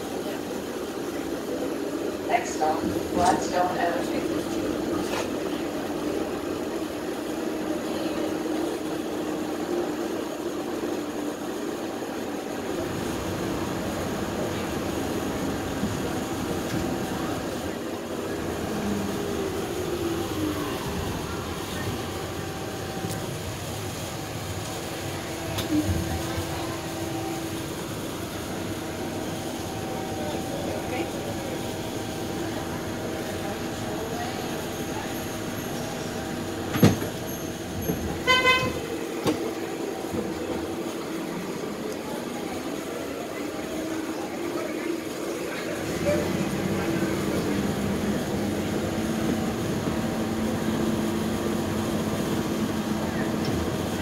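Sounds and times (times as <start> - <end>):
streetcar motors and wheels rumbling: 0.0 - 54.0
vehicle horn toot: 38.2 - 38.9.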